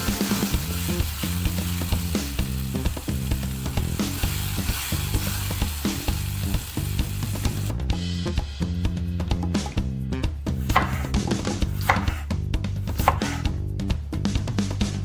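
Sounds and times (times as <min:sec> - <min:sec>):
sauce simmering and sizzling: 0:00.0 - 0:07.8
background music: 0:00.0 - 0:15.0.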